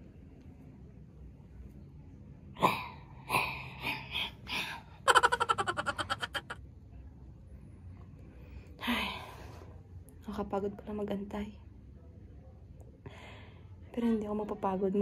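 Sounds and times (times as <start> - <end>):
person laughing and giggling: 5.0 - 6.6.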